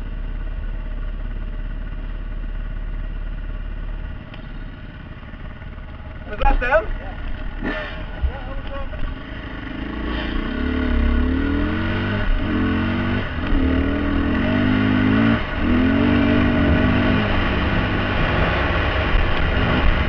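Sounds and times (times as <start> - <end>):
dirt bike engine accelerating: 3.4 - 20.0
gear shifts: 4.0 - 20.0.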